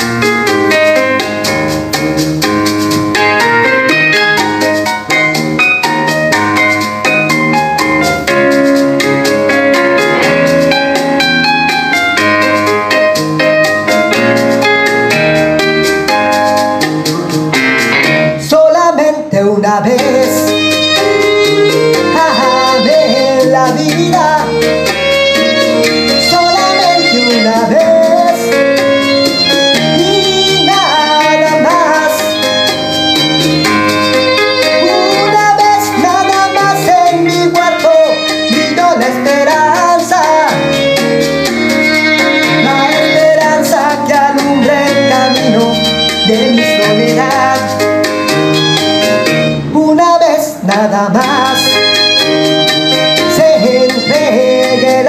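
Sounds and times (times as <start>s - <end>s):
instrumental accompaniment: 0.0s - 55.0s
man singing into a microphone: 18.3s - 41.0s, 42.4s - 48.4s, 49.3s - 55.0s.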